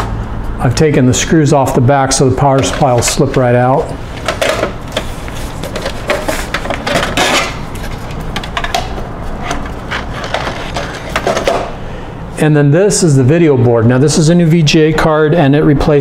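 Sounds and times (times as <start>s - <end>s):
power supply scraping metal chassis: 2.1s - 11.8s.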